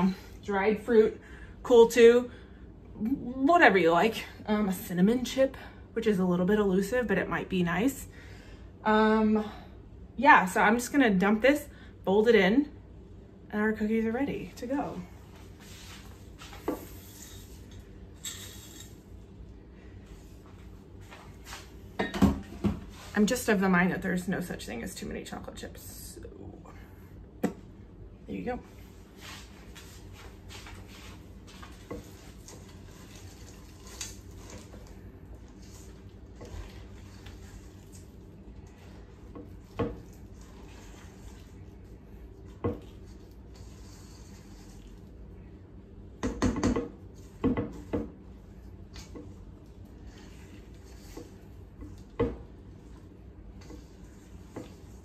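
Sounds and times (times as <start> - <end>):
wooden spoon scraping dough in bowl: 14.7 - 19.1, 28.8 - 45.6, 46.3 - 55.0.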